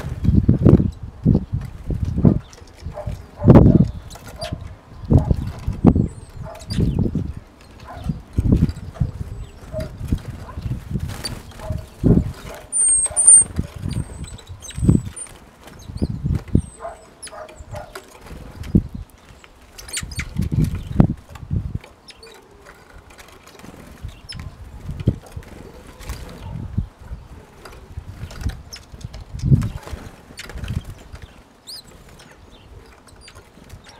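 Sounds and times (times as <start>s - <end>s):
high-pitched bird calls: 2.3s - 7.1s, 11.2s - 21.0s, 22.0s - 24.6s, 28.6s - 33.9s
bird wingbeat flutters: 18.0s - 26.7s, 27.3s - 33.9s.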